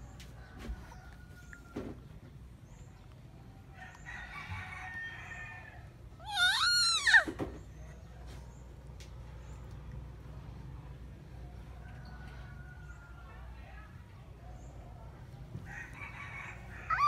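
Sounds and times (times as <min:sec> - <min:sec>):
animal call rising and falling: 0:06.2 - 0:07.4.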